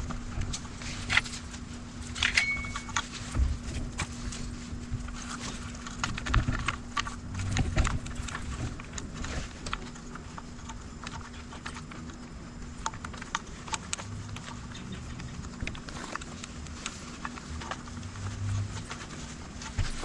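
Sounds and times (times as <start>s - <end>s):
faint steady hum: 0.0s - 20.0s
wires and plastic connectors clicking: 5.0s - 20.0s.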